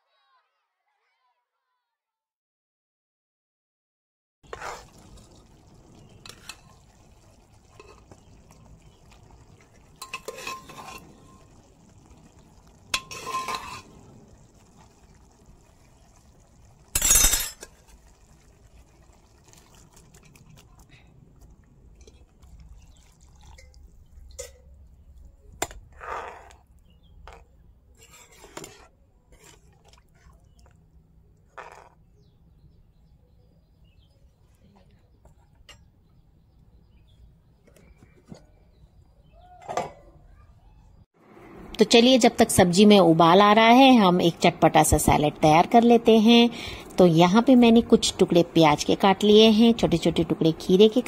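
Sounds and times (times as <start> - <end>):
metal ladle scraping pot: 4.5 - 5.3, 6.0 - 7.0, 7.6 - 11.7, 12.9 - 14.4, 16.9 - 18.1, 25.6 - 26.6, 27.3 - 30.7, 31.5 - 32.1
food splashing into pot: 4.5 - 20.8.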